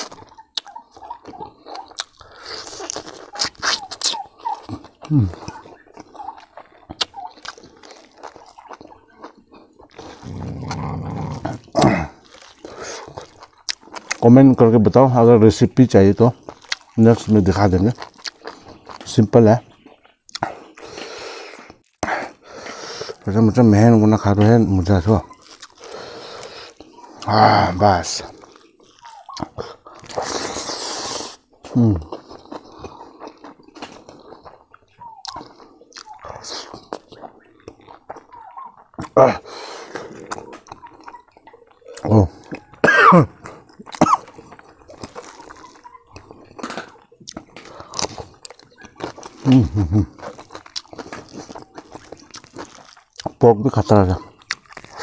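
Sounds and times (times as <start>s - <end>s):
wet chewing and lip smacks: 0.0s - 14.2s, 16.3s - 23.3s, 24.2s - 55.0s
person humming: 5.1s - 5.4s
loud slurp: 30.0s - 31.4s.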